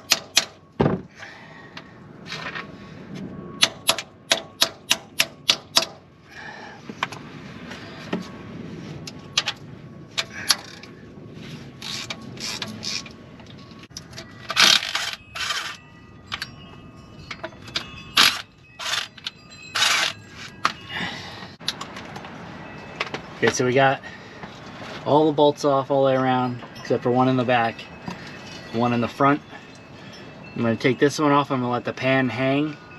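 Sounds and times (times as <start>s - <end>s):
sharp metallic taps: 3.6s - 6.0s
ratchet wrench clicking: 11.8s - 13.1s, 13.9s - 16.5s, 17.3s - 20.2s.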